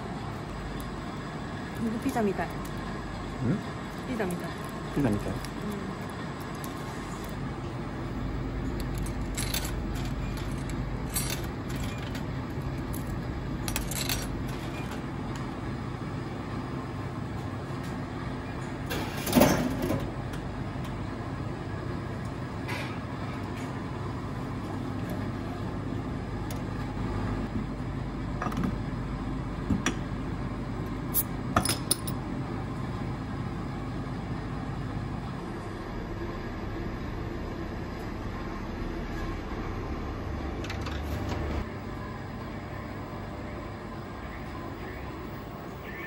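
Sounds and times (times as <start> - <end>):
steady low hum: 0.0 - 46.0
coins dropping into coin slot: 8.8 - 12.2, 12.9 - 14.8
vending machine clunk: 18.9 - 20.2.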